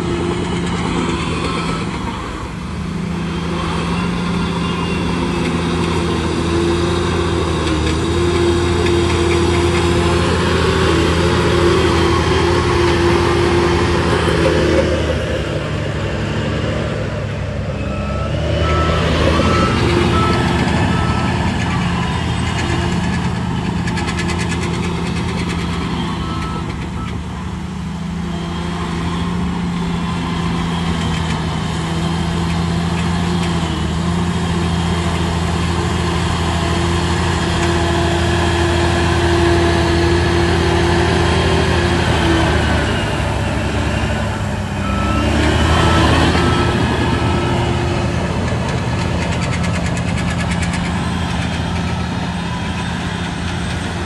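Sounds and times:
diesel machinery engine running: 0:00.0 - 0:54.0
reversing alarm beeping: 0:17.8 - 0:23.3, 0:24.8 - 0:27.2, 0:37.0 - 0:54.0.

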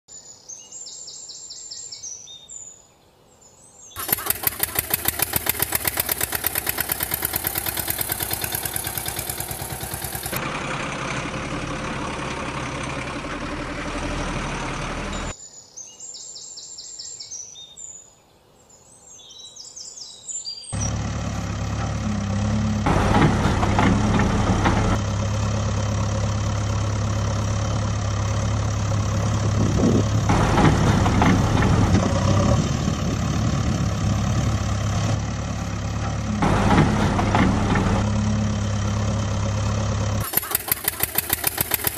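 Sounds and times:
engine with rapid pulse: 0:04.0 - 0:15.3, 0:20.8 - 0:41.9
heavy vehicle engine idling: 0:04.0 - 0:15.3, 0:20.8 - 0:41.9
birds chirping: 0:15.0 - 0:22.8.

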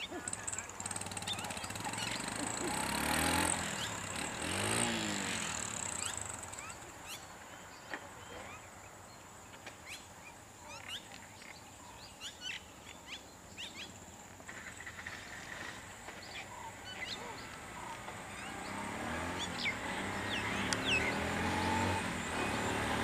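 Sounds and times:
small vehicle engine passing: 0:00.0 - 0:08.7, 0:13.8 - 0:23.0
birds chirping: 0:00.0 - 0:23.0.

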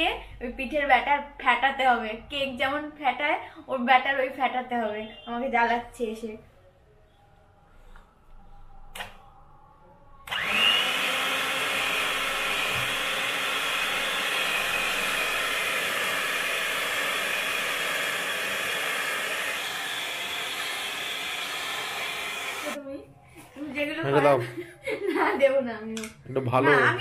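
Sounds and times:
electric hand mixer whirring: 0:10.2 - 0:22.8.

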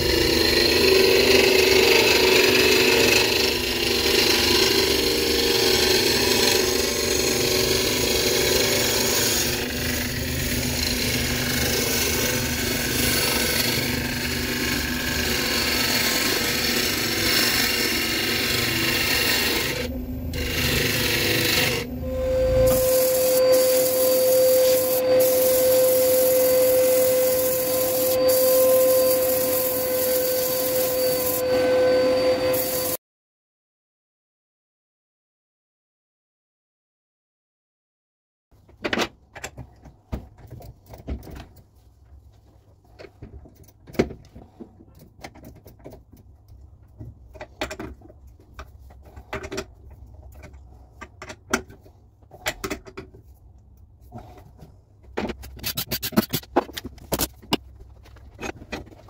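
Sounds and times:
sanding spinning bowl: 0:00.0 - 0:31.5, 0:32.4 - 0:33.0
gouge scraping wood on lathe: 0:00.1 - 0:21.9, 0:22.6 - 0:31.4.

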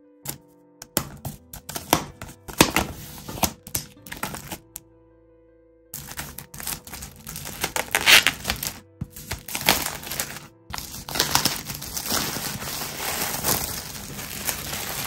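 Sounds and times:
plastic film crinkling: 0:02.2 - 0:04.8, 0:06.0 - 0:15.0.

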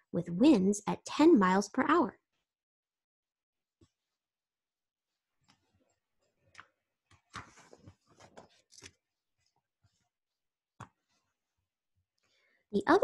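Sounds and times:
paper page turning: 0:06.6 - 0:09.0.

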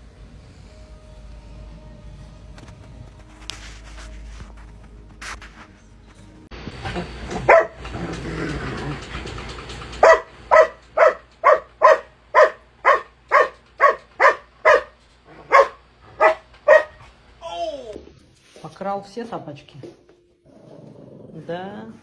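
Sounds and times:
rustling noise: 0:02.4 - 0:06.5
dog barking loudly: 0:07.3 - 0:07.9, 0:10.0 - 0:17.1.

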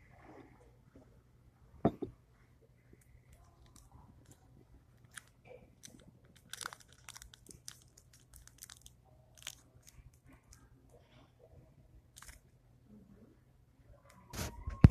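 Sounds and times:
candy wrappers crinkling: 0:05.0 - 0:10.7, 0:12.1 - 0:12.4.

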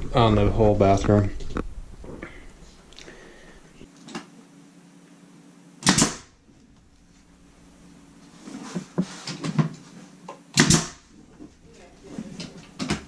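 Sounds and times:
nail gun shot: 0:05.8 - 0:06.3, 0:10.5 - 0:11.0.

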